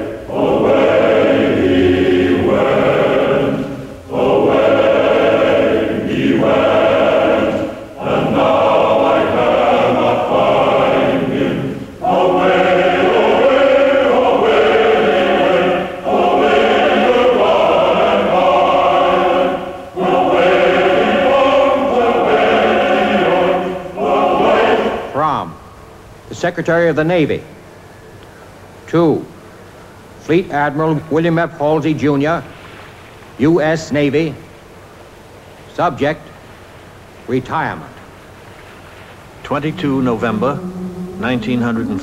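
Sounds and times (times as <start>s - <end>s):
choir singing sustained chords: 0.0s - 25.8s, 39.2s - 42.0s.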